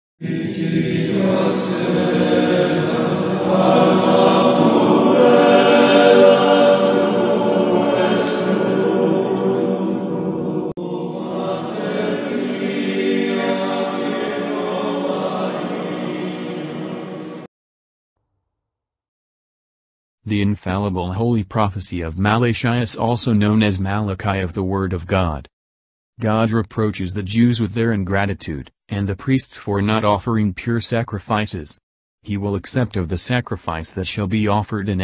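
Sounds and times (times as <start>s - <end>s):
choir holding long sung notes: 0.2s - 17.5s.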